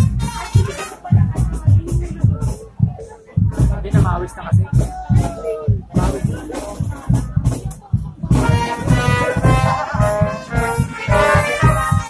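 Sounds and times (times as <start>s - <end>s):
marching brass band playing: 0.0s - 2.3s, 8.3s - 12.0s.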